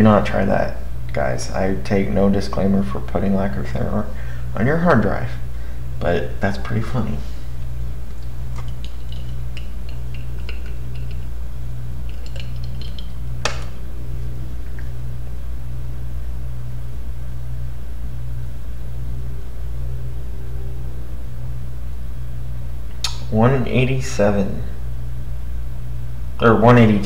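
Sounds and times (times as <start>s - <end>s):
hard drive low hum: 0.0s - 27.0s
hard drive heads ticking: 8.5s - 13.5s.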